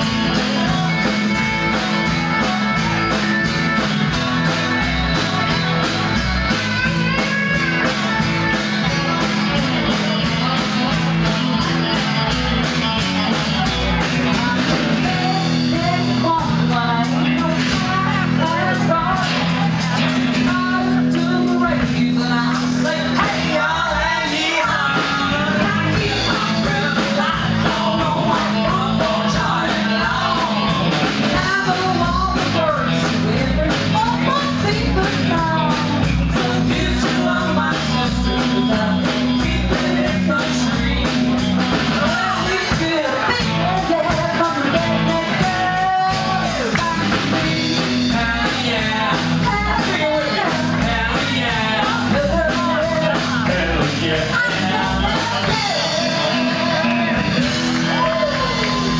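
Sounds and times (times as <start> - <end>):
live country band playing: 0.0 - 58.9
woman singing: 14.0 - 58.9.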